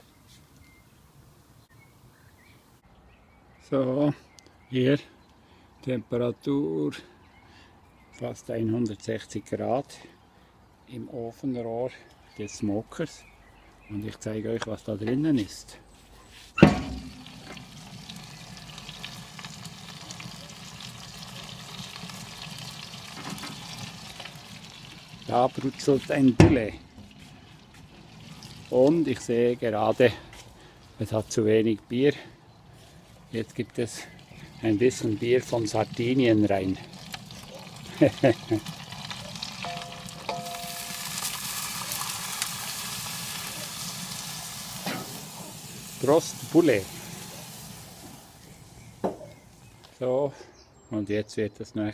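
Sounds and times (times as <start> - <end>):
chicken sizzling: 16.7 - 29.5, 33.9 - 49.8.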